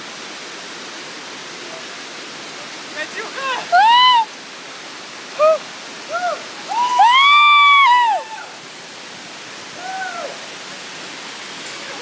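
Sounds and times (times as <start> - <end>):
stream rushing: 0.0 - 12.0
long high-pitched yell: 3.5 - 4.3, 5.4 - 8.6.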